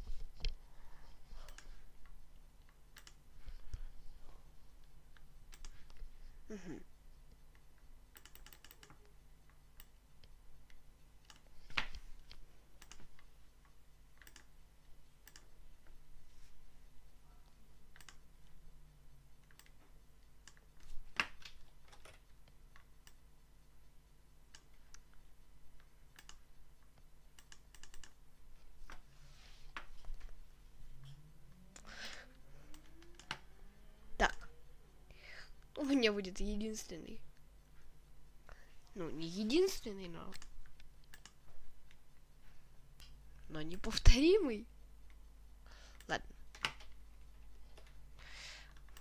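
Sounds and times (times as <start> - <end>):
faint steady hum: 0.0 - 49.0
keyboard clicks: 1.4 - 3.2, 5.1 - 6.0, 7.5 - 9.1, 9.8 - 13.3, 14.2 - 14.6, 15.2 - 15.5, 17.9 - 18.6, 19.4 - 19.8, 20.4 - 23.2, 26.1 - 26.5, 27.3 - 28.2, 31.8 - 33.5, 40.3 - 42.0
computer mouse clicks: 1.4 - 3.8, 4.8 - 6.0, 7.3 - 14.6, 15.2 - 15.5, 17.9 - 18.6, 19.4 - 23.2, 24.5 - 25.2, 25.8 - 28.2, 31.8 - 33.6, 40.2 - 42.0, 48.7 - 49.0.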